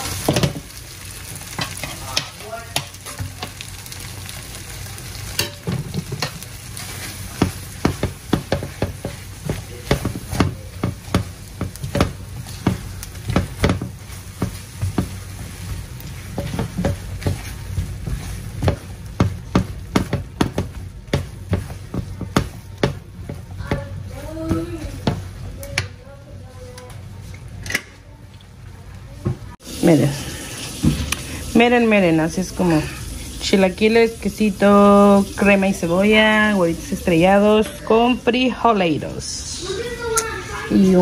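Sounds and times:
food sizzling in a pan: 0:00.0 - 0:27.6, 0:28.8 - 0:41.0
utensil scraping and knocking pan: 0:05.4 - 0:25.3.

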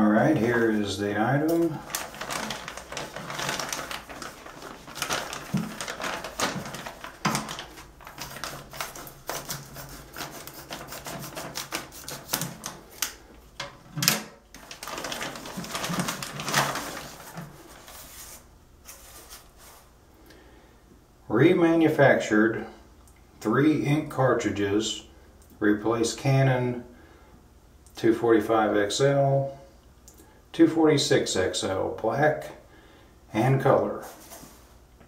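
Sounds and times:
plastic crinkling: 0:01.4 - 0:19.9
scissors cutting plastic: 0:01.5 - 0:13.2.

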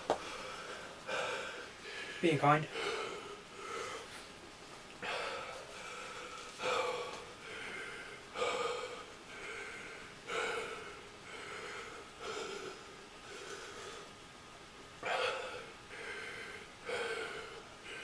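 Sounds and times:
man gasping and breathing hard: 0:00.2 - 0:04.2, 0:05.0 - 0:14.1, 0:15.0 - 0:18.0.

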